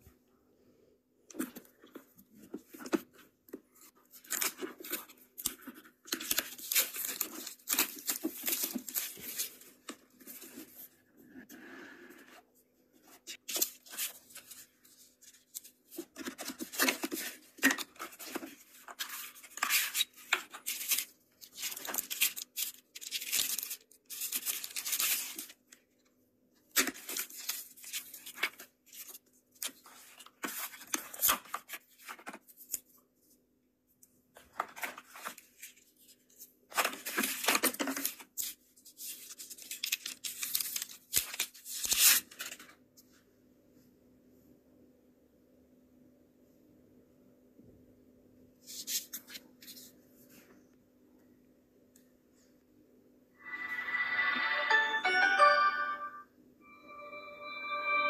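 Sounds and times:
plastic packaging crinkling: 15.3 - 25.7.

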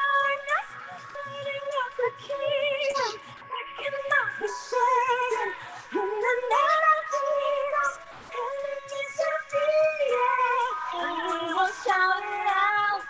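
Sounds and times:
woman singing gospel: 0.0 - 13.0.

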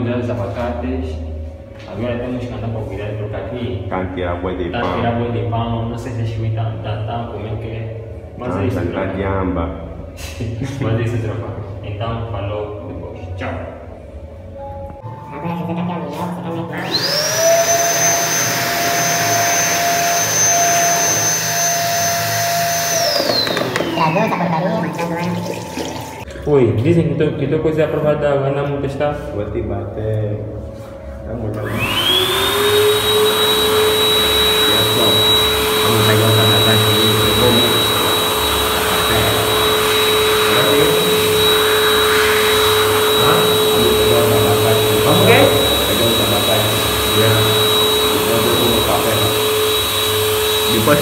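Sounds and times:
electric hand dryer running: 16.6 - 26.3, 31.5 - 51.0
motor spinning down: 16.7 - 26.2, 31.6 - 51.0.

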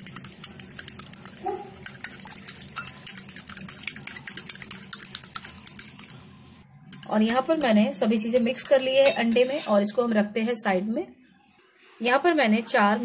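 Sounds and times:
utensil clicking against glass bowl: 0.0 - 6.1
liquid egg swishing: 0.0 - 6.4.

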